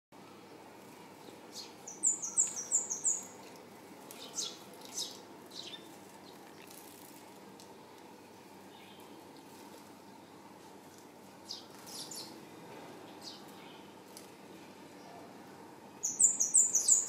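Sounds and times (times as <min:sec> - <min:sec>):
wings fluttering: 0:05.8 - 0:07.4.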